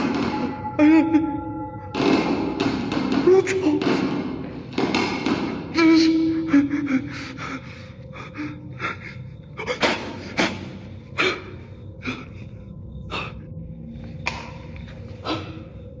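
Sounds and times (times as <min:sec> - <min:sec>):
man breathing heavily: 0:06.4 - 0:14.2.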